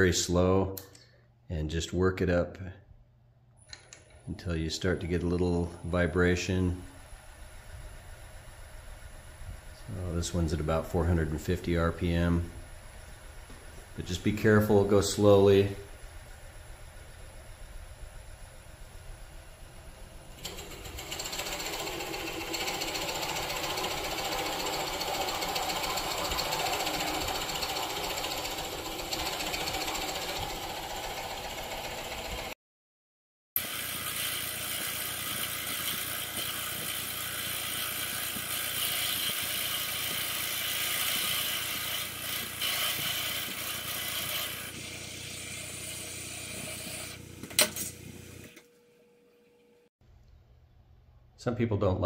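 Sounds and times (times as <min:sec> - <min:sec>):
lathe tool chattering on wood: 0:20.4 - 0:32.5, 0:33.6 - 0:47.6.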